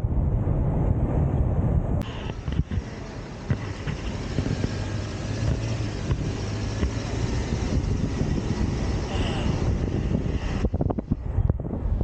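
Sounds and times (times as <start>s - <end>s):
road and wind noise: 0.0s - 12.0s
vehicle engine hum: 0.8s - 12.0s.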